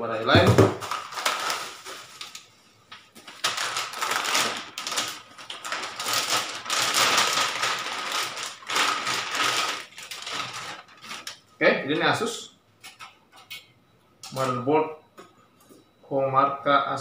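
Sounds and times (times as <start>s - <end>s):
plastic packaging crinkling: 0.5s - 11.5s.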